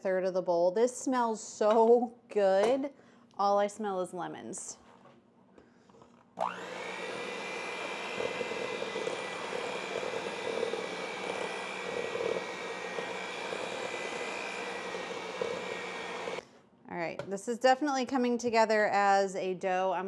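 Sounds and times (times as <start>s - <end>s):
beaters churning dough: 6.4s - 16.4s
electric hand mixer whining: 6.4s - 16.4s.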